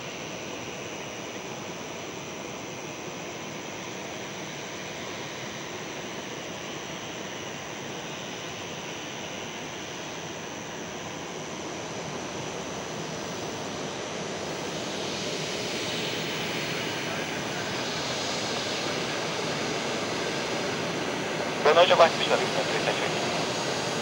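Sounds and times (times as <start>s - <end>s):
jet engines whining: 12.9s - 24.0s.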